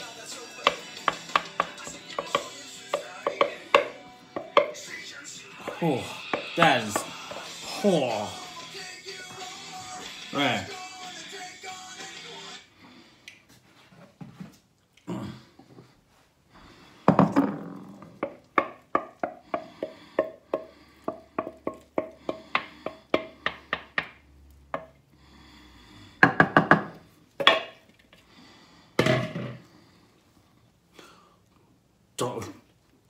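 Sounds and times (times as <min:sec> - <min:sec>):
wooden utensil knocking glass bowl: 0:01.3 - 0:04.8.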